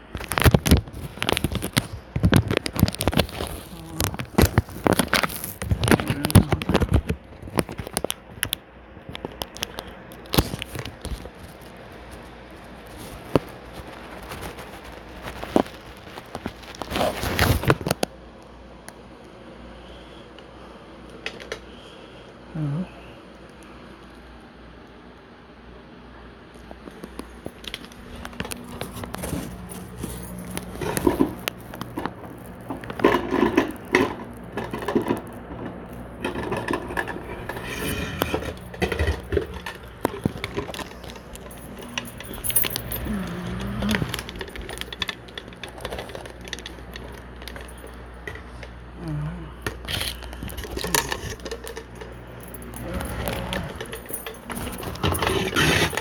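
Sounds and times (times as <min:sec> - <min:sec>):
low hum: 0:25.8 - 0:56.0.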